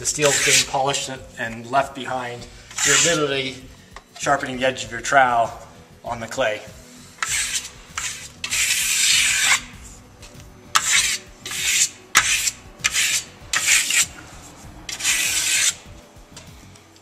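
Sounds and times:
steel trowel scraping plaster: 0.0s - 1.0s, 2.5s - 3.6s, 7.0s - 10.0s, 10.7s - 15.9s.

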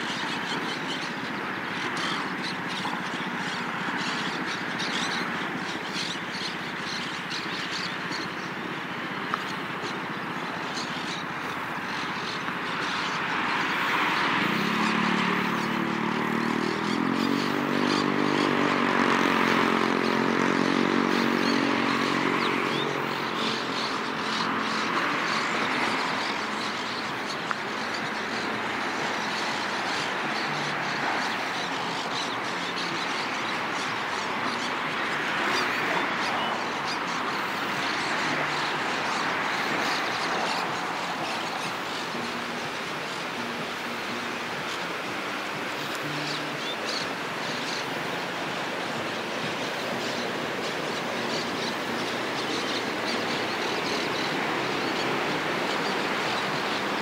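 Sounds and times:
city traffic rush: 0.0s - 57.0s
vehicle engine passing: 12.8s - 26.8s.

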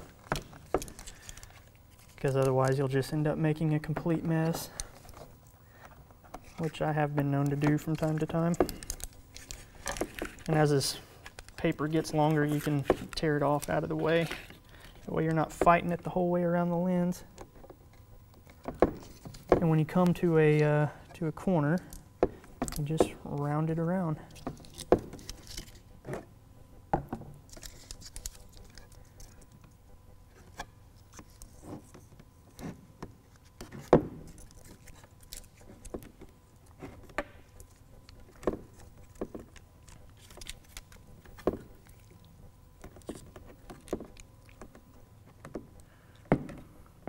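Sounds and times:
hands handling tape: 0.0s - 3.1s, 3.9s - 16.0s, 24.3s - 26.3s, 27.4s - 46.7s.

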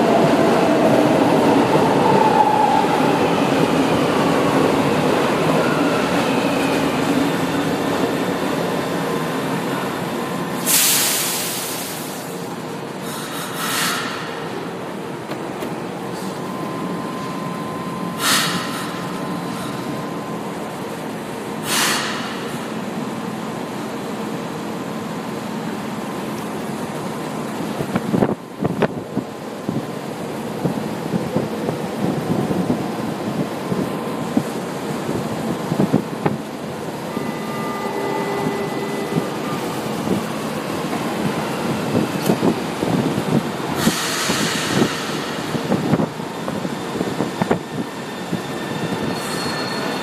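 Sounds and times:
train equipment humming: 0.0s - 50.0s
train doors sliding shut: 10.4s - 16.5s, 18.2s - 20.0s, 21.5s - 22.8s, 39.0s - 50.0s
compressed air hisses: 10.6s - 12.4s
warning tone: 37.0s - 40.2s.

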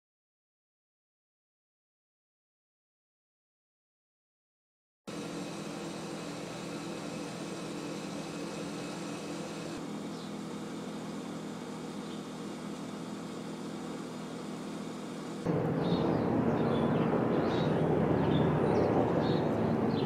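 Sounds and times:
mechanical hum with hiss: 5.1s - 20.0s.

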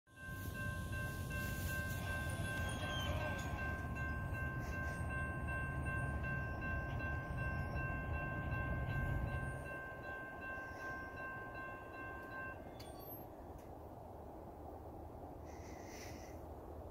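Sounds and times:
crossing warning bell ringing: 0.1s - 13.7s.

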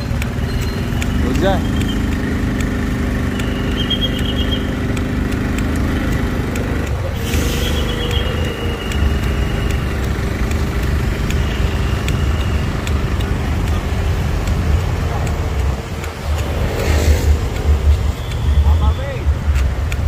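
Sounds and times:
motorbike engine running: 0.0s - 20.0s
road traffic noise: 0.0s - 20.0s.

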